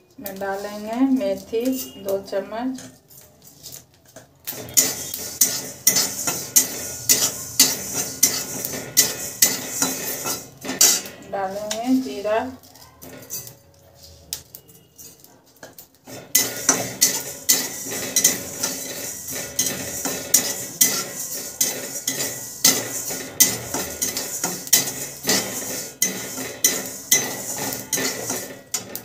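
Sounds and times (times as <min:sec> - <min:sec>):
metal spatula scraping pan: 0:00.2 - 0:29.0
seeds rattling in pan: 0:04.5 - 0:13.6, 0:15.0 - 0:29.0.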